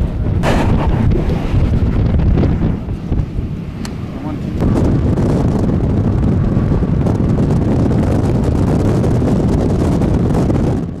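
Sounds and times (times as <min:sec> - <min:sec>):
road noise: 0:00.0 - 0:10.9
wind rumbling on microphone: 0:00.0 - 0:11.0.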